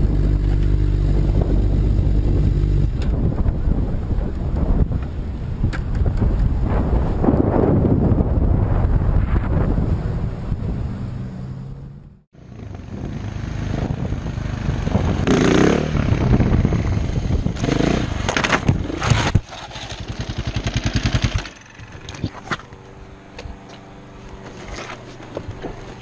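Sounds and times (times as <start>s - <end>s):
motorcycle engine revving: 0.0s - 3.8s, 10.1s - 22.4s
motorcycle crashing clatter: 18.1s - 22.5s.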